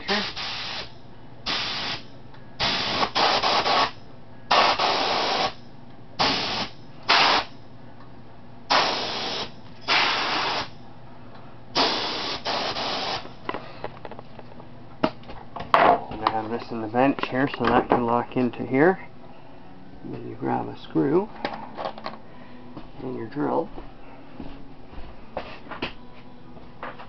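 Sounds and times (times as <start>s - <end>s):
airbrush air blasts hissing: 0.0s - 5.6s, 6.2s - 7.6s, 8.7s - 10.8s, 11.8s - 13.3s.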